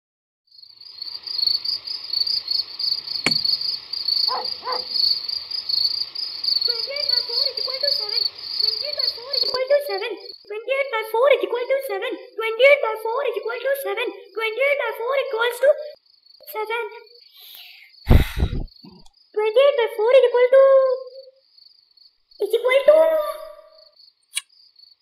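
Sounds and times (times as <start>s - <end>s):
crickets chirping: 0.5s - 25.0s
person mumbling: 18.1s - 19.1s.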